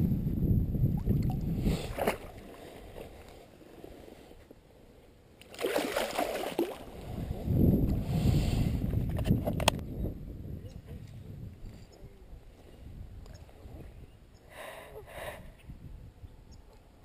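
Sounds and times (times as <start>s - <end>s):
wind rumble on microphone: 0.0s - 3.2s, 6.8s - 17.0s
creek water splashing: 1.8s - 4.0s, 5.4s - 7.4s.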